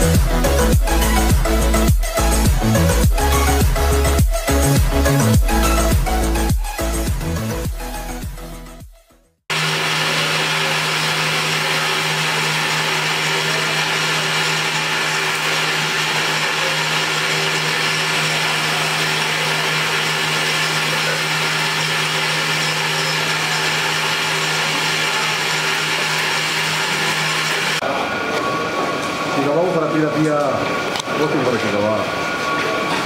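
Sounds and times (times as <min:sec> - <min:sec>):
grain mill motor hum: 0:09.5 - 0:27.8.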